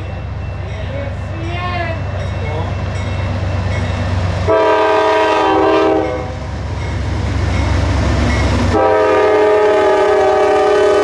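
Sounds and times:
diesel locomotives running: 0:00.0 - 0:11.0
locomotive air horn: 0:04.5 - 0:06.4, 0:08.7 - 0:11.0.

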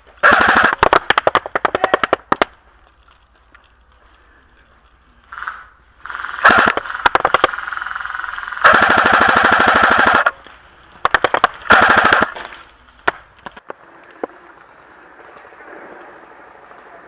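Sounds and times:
airsoft gun automatic bursts: 0:00.2 - 0:02.4, 0:05.3 - 0:10.4, 0:11.1 - 0:12.5.

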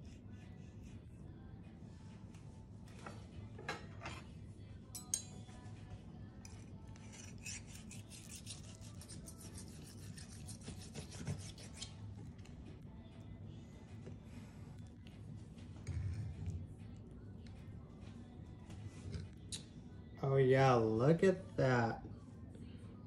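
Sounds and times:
knife sawing through meat: 0:07.0 - 0:12.0.

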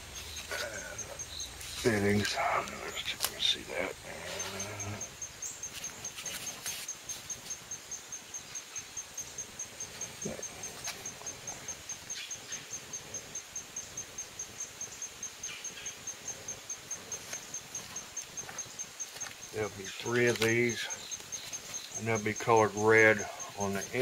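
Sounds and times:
high-pitched insect chirp: 0:00.0 - 0:24.0
faint clicks: 0:00.1 - 0:07.6.

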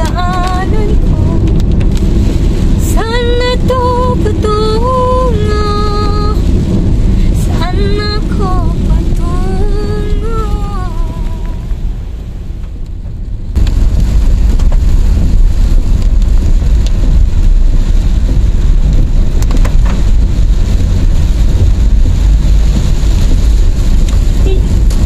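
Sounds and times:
heavy rain drumming on car: 0:00.0 - 0:25.0
low road and engine rumble: 0:00.0 - 0:25.0.

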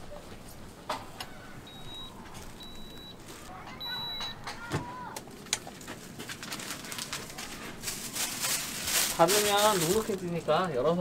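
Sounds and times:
faint voices: 0:00.0 - 0:11.0
short high beeps: 0:03.8 - 0:04.4.

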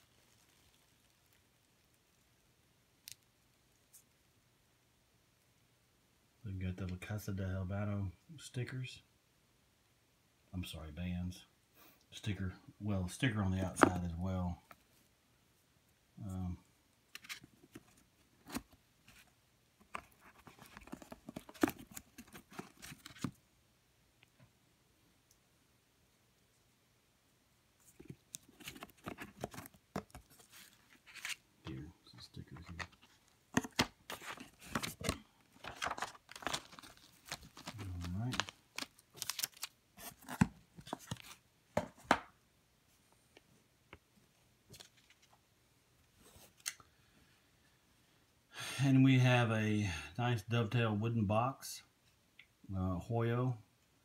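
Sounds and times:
paper rustling: 0:27.8 - 0:31.4, 0:32.6 - 0:41.9.

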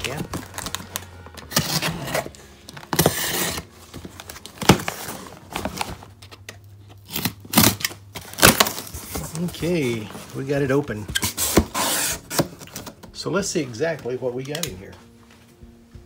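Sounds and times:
tape and cardboard tearing: 0:00.0 - 0:09.5, 0:11.1 - 0:13.0.

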